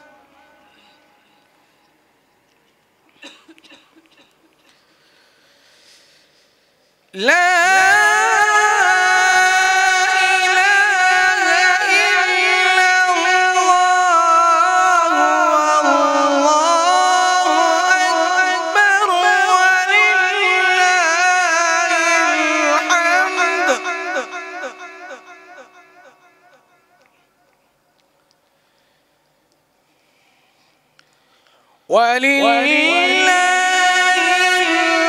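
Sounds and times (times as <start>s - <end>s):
man reciting melodically: 0.0s - 1.8s, 7.1s - 27.1s, 31.7s - 35.0s.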